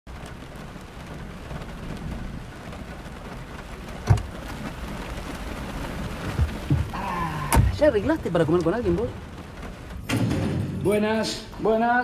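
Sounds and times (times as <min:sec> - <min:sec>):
rain on a car roof: 0:00.1 - 0:12.0
sharp clunk: 0:10.0 - 0:10.9.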